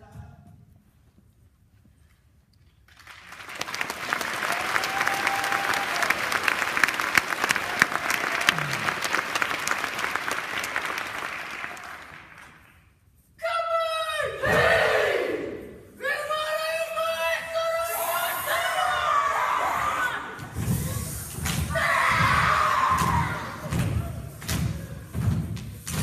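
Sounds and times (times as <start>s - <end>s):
audience clapping: 2.9s - 12.9s.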